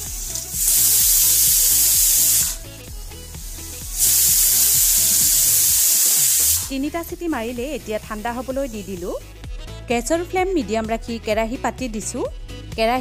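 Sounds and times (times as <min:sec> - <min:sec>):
pressure cooker whistling: 0:00.0 - 0:09.0.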